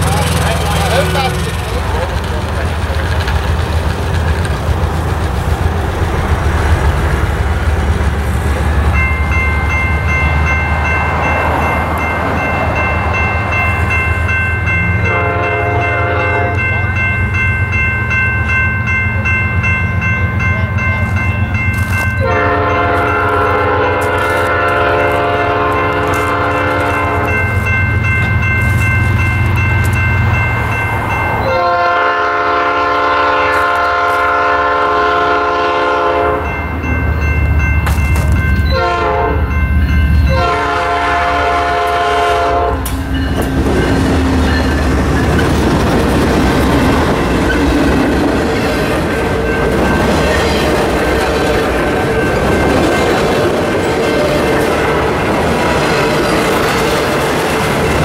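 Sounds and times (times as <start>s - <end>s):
crossing bell ringing: 0.0s - 3.0s, 5.8s - 58.0s
wheels on rails: 0.0s - 15.1s, 42.8s - 58.0s
locomotive engine rumble: 0.0s - 58.0s
locomotive air horn blasts: 15.0s - 16.6s, 22.2s - 27.4s, 31.4s - 36.5s, 38.7s - 39.6s, 40.3s - 43.0s.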